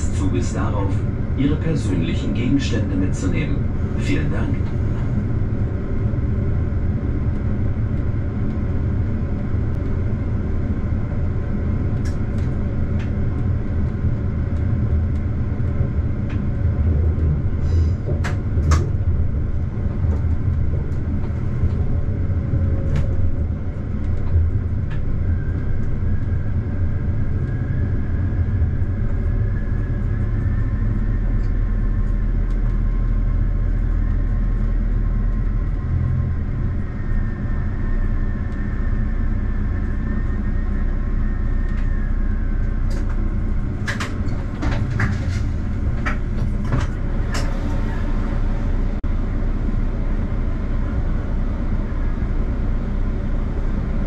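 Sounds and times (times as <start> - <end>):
deep hum: 0.0 - 54.0
train rumbling: 0.0 - 54.0
faint high whine: 24.2 - 43.7.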